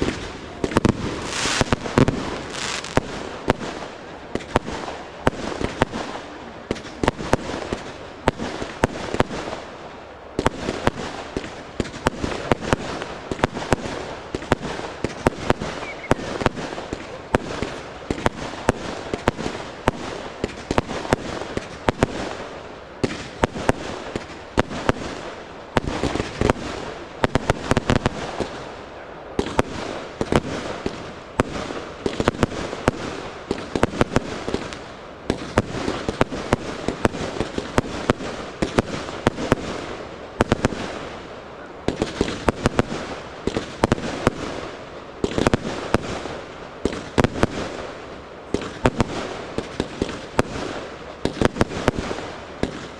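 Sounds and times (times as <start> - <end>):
fireworks hiss: 0.0 - 28.7
fireworks bangs and pops: 0.0 - 52.9.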